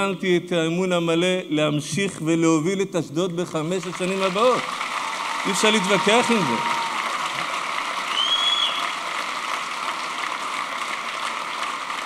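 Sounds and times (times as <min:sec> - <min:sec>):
audience applauding: 0:03.8 - 0:12.0
short whistle: 0:08.1 - 0:08.9.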